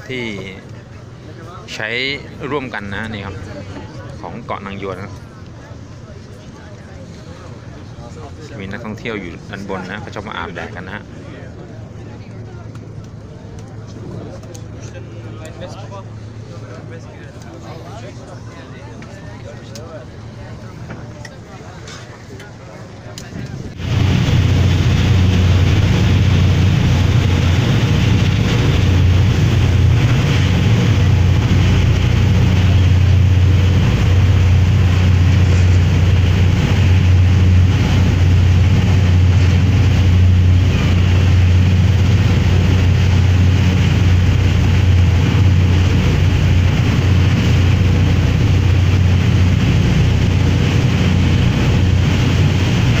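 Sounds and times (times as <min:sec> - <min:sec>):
ferry engines droning: 0:00.0 - 0:53.0
wind on microphone: 0:23.2 - 0:53.0
wake rushing: 0:23.6 - 0:53.0.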